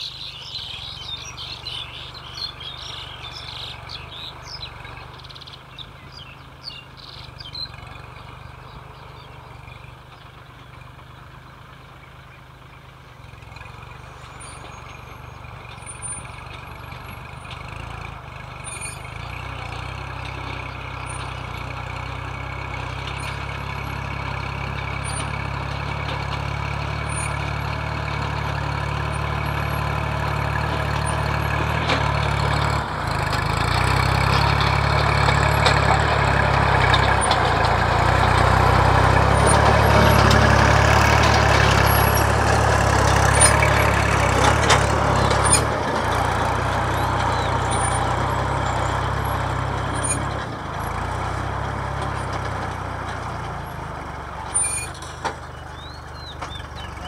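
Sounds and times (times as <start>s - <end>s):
tractor diesel engine under load: 0.0s - 57.0s.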